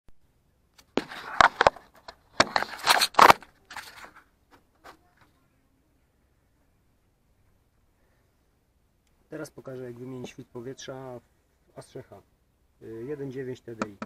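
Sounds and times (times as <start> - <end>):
handling clicks and rustles: 0.8 - 5.4.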